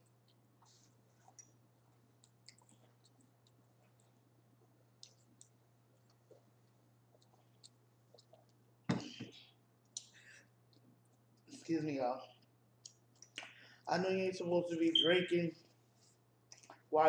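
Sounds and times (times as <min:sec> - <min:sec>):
chewing clicks: 0:02.2 - 0:04.2, 0:04.9 - 0:08.6.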